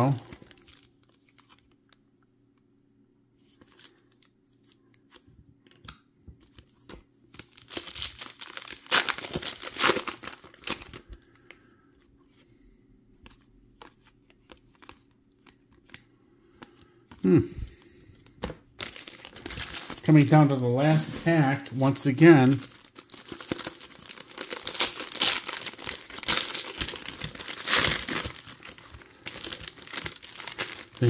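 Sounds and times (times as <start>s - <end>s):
foil wrapper tearing and crinkling: 7.4s - 11.1s, 18.8s - 31.0s
cards clicking and rustling: 13.2s - 17.2s, 18.2s - 31.0s.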